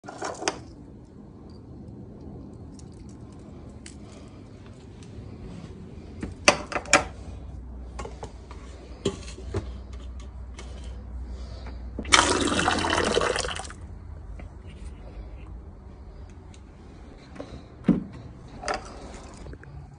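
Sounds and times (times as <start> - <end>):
water pouring into plastic cup: 12.0 - 13.8.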